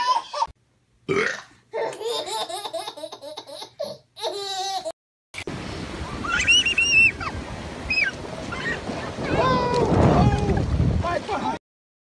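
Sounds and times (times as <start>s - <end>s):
baby laughing: 0.0s - 0.5s, 1.7s - 5.0s
surf washing up a beach: 5.4s - 11.6s.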